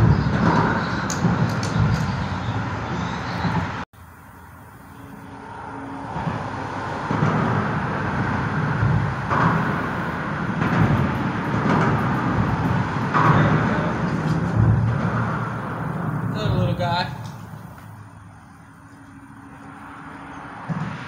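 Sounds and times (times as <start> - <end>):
highway traffic rumble: 0.0 - 21.0.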